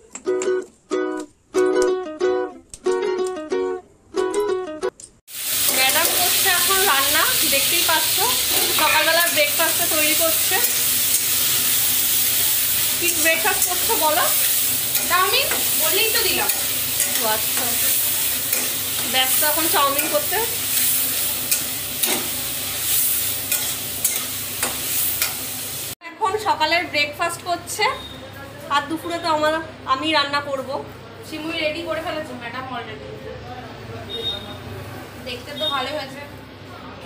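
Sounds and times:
sizzling hiss: 0:05.3 - 0:26.0.

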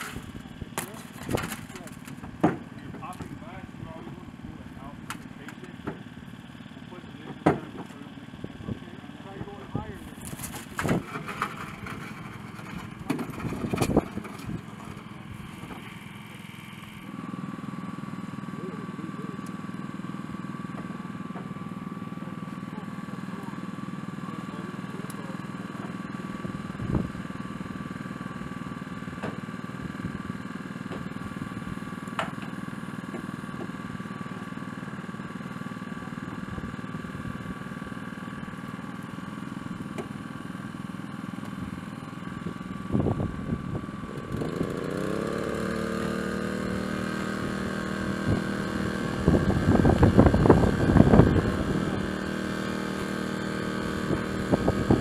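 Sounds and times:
engine running steadily: 0:00.0 - 0:55.0
second engine starting and revving: 0:42.7 - 0:55.0.

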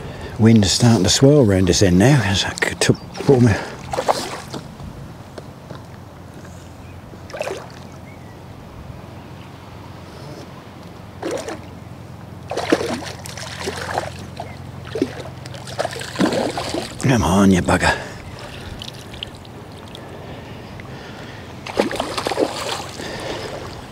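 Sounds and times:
wind buffeting microphone: 0:00.0 - 0:06.3, 0:16.2 - 0:23.9.

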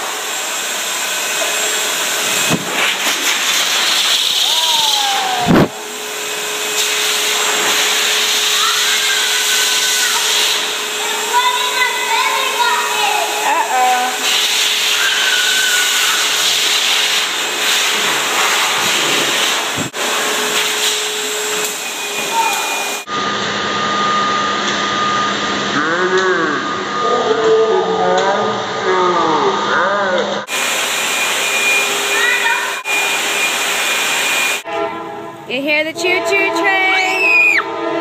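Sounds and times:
pet blow dryer blasting air: 0:00.0 - 0:24.9, 0:30.5 - 0:34.7.

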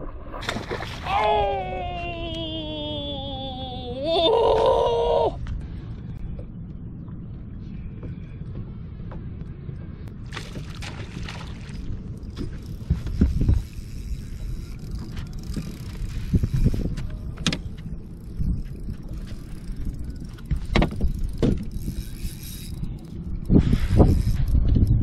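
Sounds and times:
wind rumble on microphone: 0:00.0 - 0:25.0
fishing reel cranking: 0:12.6 - 0:16.9, 0:18.2 - 0:24.6.

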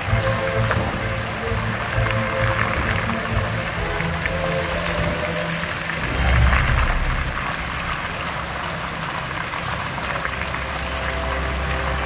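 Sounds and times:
fountain jets splashing: 0:00.0 - 0:12.0
low whoosh of flame jets: 0:05.9 - 0:09.8.

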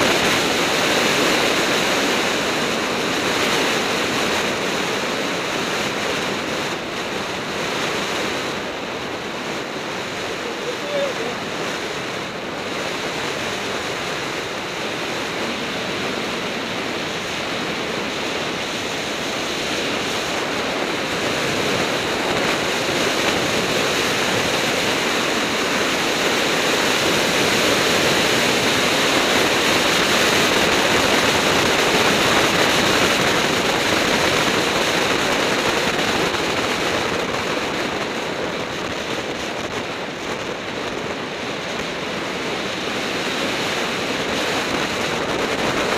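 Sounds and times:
wind buffeting microphone: 0:00.0 - 0:45.9.

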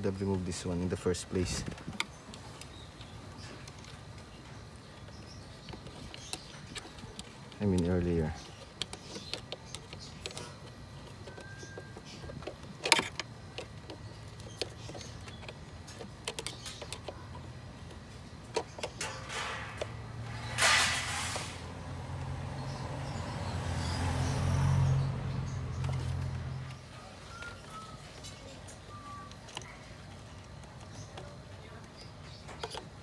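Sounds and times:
short rushing noise: 0:20.3 - 0:21.8.

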